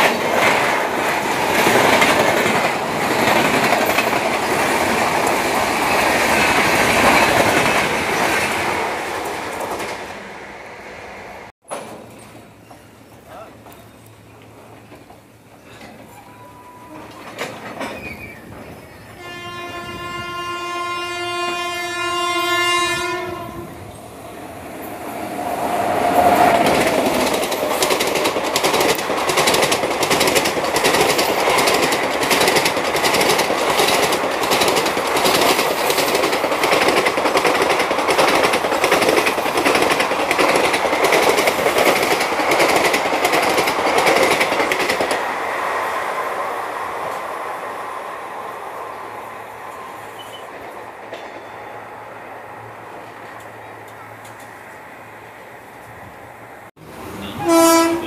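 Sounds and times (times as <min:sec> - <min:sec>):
train rushing past: 0:00.0 - 0:58.0
train horn blast: 0:16.2 - 0:17.2, 0:19.2 - 0:23.9, 0:57.1 - 0:58.0
wheels clattering over rail joints: 0:16.9 - 0:19.0, 0:26.2 - 0:45.4.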